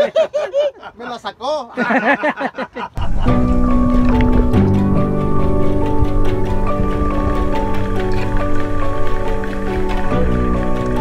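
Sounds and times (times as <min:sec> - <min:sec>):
background music held notes: 0:03.0 - 0:11.0.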